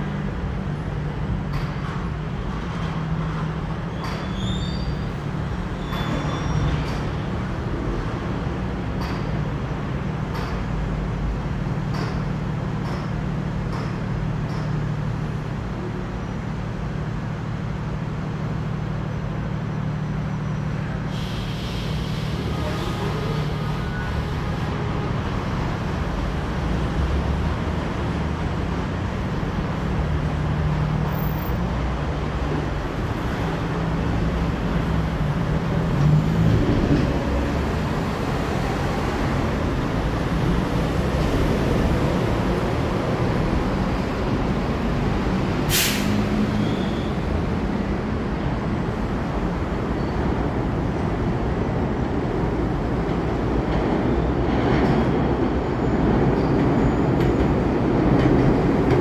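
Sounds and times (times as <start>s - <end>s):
city traffic hum: 0.0s - 59.0s
hiss: 21.1s - 23.8s, 45.7s - 46.4s.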